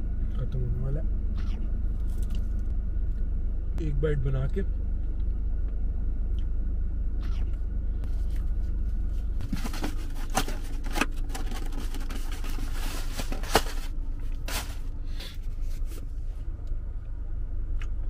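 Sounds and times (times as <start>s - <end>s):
low rumble inside car: 0.0s - 18.0s.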